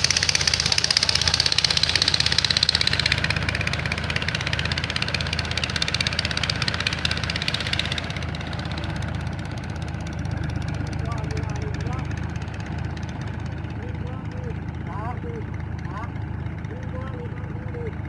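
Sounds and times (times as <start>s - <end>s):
bright clatter: 0.0s - 10.2s
tractor diesel engine running: 0.0s - 18.0s.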